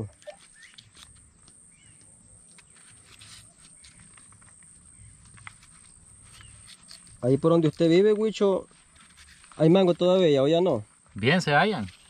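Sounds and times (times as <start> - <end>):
bird chirping: 0.0 - 7.7
knife cutting and scraping mango: 0.2 - 1.6, 2.4 - 4.4, 5.5 - 8.2.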